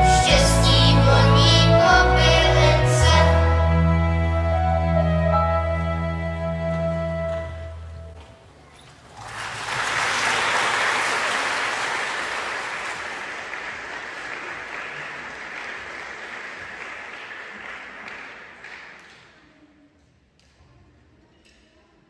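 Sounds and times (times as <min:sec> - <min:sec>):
audience applauding: 0:09.0 - 0:19.3.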